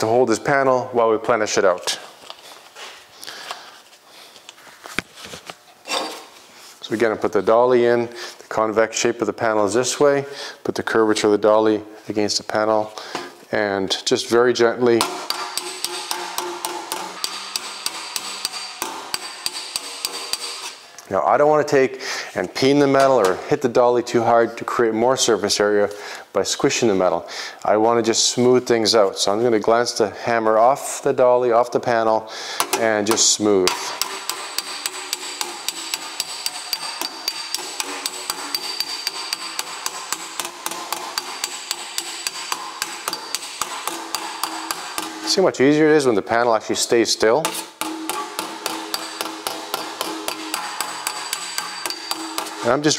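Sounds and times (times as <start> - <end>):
hammer tapping on sheet metal: 15.0 - 20.8, 32.6 - 45.4, 47.4 - 52.8.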